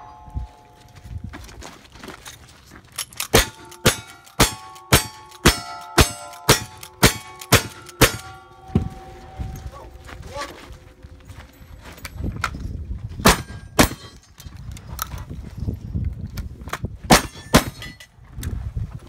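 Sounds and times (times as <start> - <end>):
steel target ringing: 0.0 - 1.2, 3.3 - 11.2, 13.3 - 14.2
rifle shots: 3.2 - 8.5, 13.2 - 14.2.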